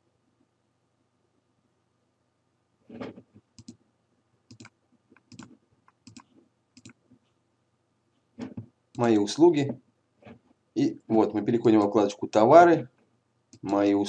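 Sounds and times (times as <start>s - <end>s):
computer mouse clicking: 3.0s - 3.8s, 4.5s - 7.0s.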